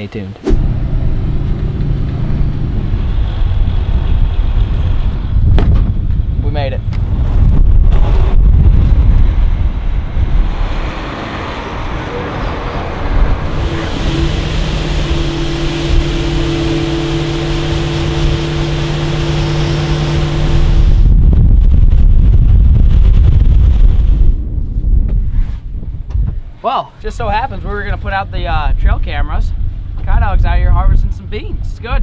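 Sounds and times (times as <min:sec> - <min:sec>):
engine drone: 0:00.4 - 0:22.4
wind buffeting microphone: 0:00.5 - 0:32.0.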